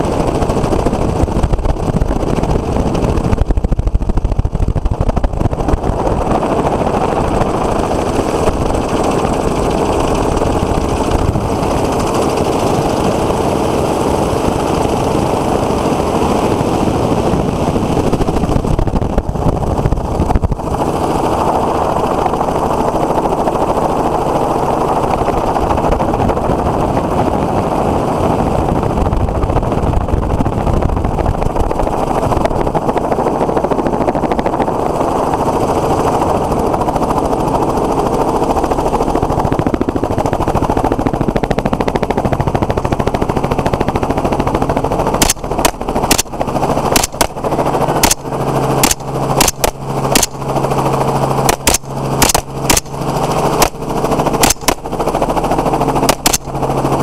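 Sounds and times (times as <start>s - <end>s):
helicopter flying: 0.0s - 57.0s
rapid rifle shots: 45.1s - 55.3s, 55.9s - 56.8s.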